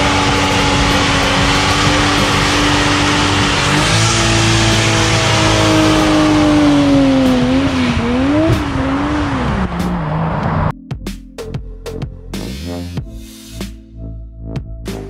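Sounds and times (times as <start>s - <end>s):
engine at high revs: 0.0s - 10.7s
spinning tyres squealing: 0.0s - 10.7s.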